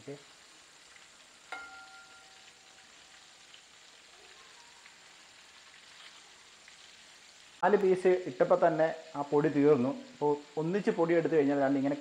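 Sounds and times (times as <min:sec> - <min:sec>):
chicken deep-frying in oil: 0:00.0 - 0:12.0
sharp clink: 0:01.5 - 0:02.4.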